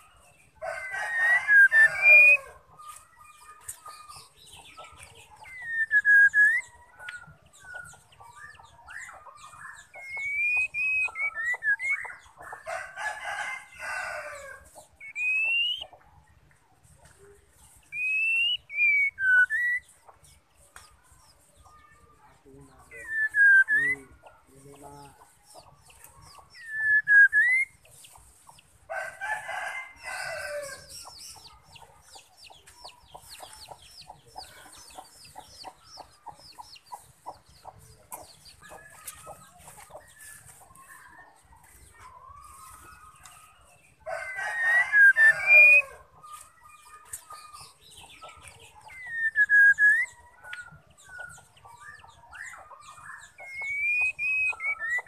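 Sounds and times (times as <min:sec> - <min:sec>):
rooster crowing: 0:00.6 - 0:02.6, 0:12.7 - 0:14.6, 0:28.9 - 0:30.9, 0:44.0 - 0:46.1
faint ticking chatter: 0:01.6 - 0:13.7, 0:14.4 - 0:28.9, 0:29.9 - 0:55.0
bird whistled calls: 0:05.4 - 0:07.2, 0:10.0 - 0:12.2, 0:15.0 - 0:15.9, 0:17.9 - 0:19.9, 0:23.0 - 0:24.1, 0:26.5 - 0:27.8, 0:48.9 - 0:52.6, 0:53.4 - 0:55.0.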